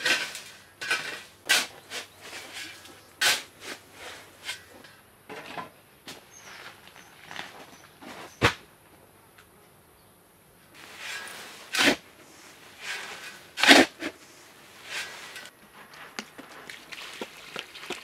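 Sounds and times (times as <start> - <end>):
shovel scraping sand and gravel: 0.0 - 4.8, 10.8 - 15.9.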